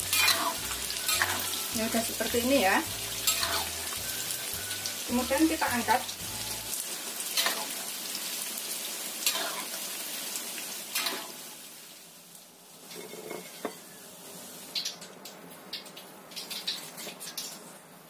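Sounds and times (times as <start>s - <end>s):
tofu sizzling in oil: 0.0s - 15.0s.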